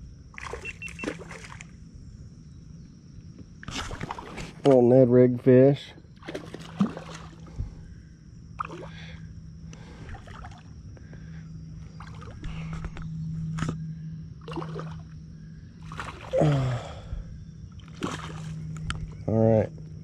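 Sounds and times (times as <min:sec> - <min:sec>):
steady low hum: 0:00.0 - 0:20.0
water gurgling against kayak hull: 0:14.4 - 0:19.2.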